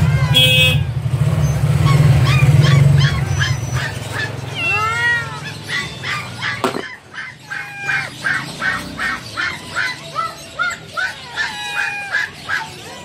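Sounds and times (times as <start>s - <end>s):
caged animals calling: 1.3s - 13.0s.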